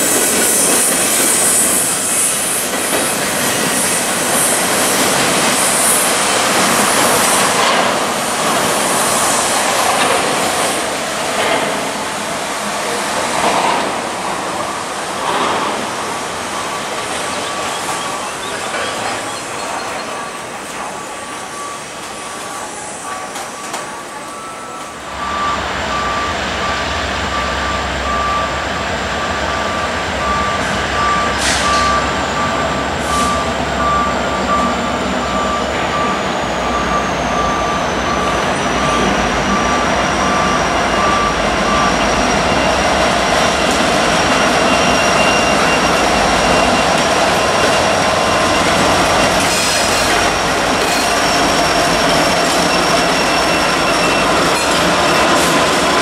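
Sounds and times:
rail cars rolling over rails: 0.0 - 56.0
high wheel squeal: 16.5 - 28.5, 29.2 - 56.0
electronic beeping tone: 16.6 - 28.6, 29.2 - 49.6
diesel engines rumbling: 23.6 - 56.0.

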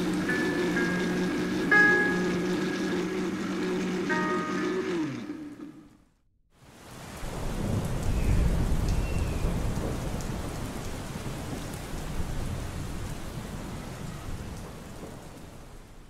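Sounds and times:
rain: 0.0 - 5.8, 6.5 - 16.0
rolling thunder rumble: 7.2 - 16.0.

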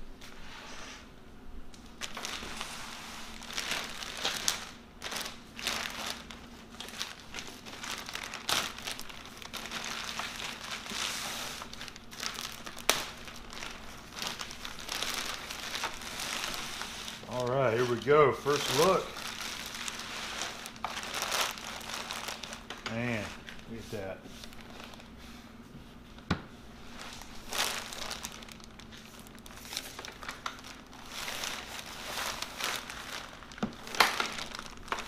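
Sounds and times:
plastic bag crinkling: 1.8 - 25.2, 26.8 - 35.0.

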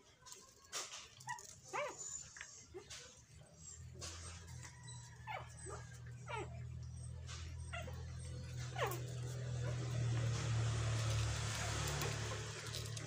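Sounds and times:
puppies whimpering: 1.2 - 10.5.

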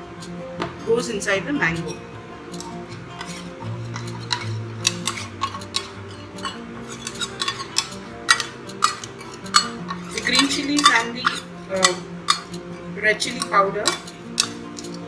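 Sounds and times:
metal spoon scraping steel bowl: 2.6 - 15.0
spoon clinking against bowls: 2.6 - 15.0.

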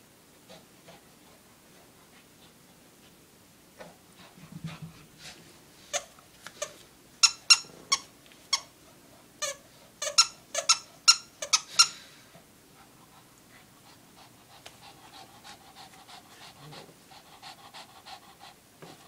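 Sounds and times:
dog toy squeaking: 6.0 - 8.7, 9.4 - 11.9.

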